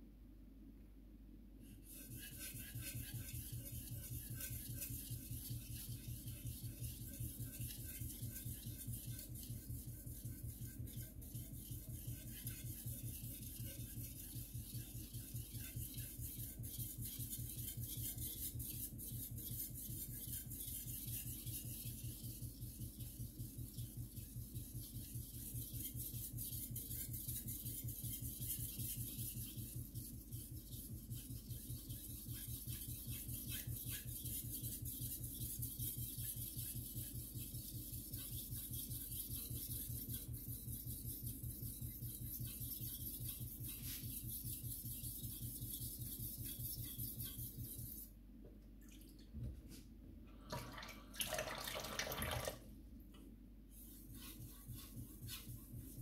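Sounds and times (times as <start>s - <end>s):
knife scraping on whetstone: 53.9s - 56.0s.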